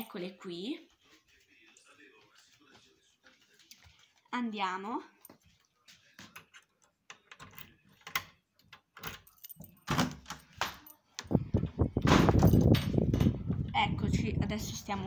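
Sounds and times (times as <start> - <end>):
keys jangling: 9.0 - 11.0, 12.3 - 13.4.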